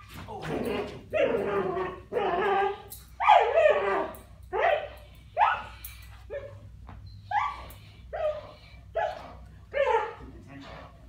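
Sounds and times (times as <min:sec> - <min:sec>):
dog barking: 0:03.2 - 0:06.6, 0:07.3 - 0:10.2.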